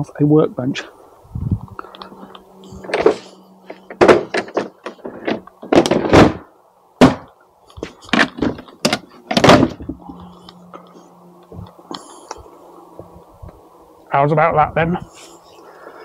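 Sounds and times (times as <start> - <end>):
workbench frame clunking: 2.8 - 10.0.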